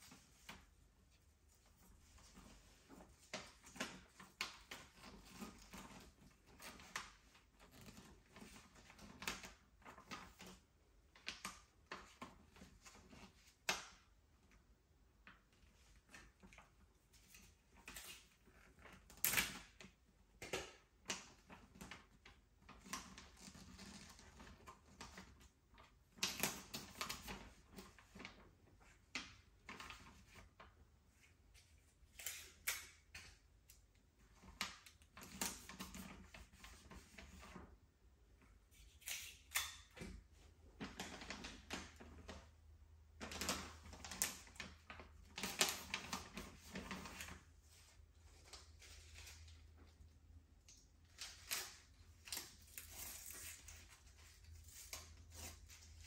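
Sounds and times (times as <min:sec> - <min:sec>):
wrapping paper rustling: 0:43.2 - 0:50.2.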